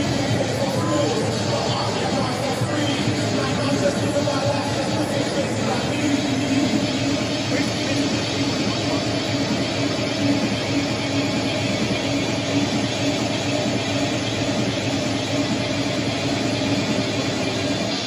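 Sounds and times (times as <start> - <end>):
held hum: 0.0 - 18.0
stadium crowd roar: 0.0 - 18.0.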